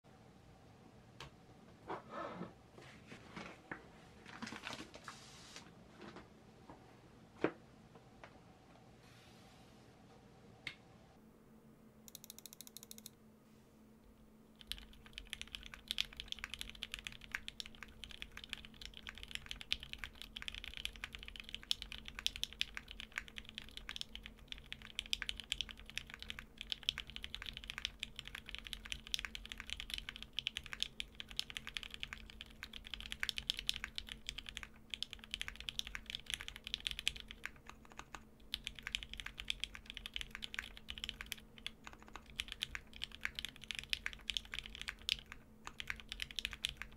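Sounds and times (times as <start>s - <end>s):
fast mechanical keyboard typing: 12.1s - 13.1s, 14.6s - 46.9s.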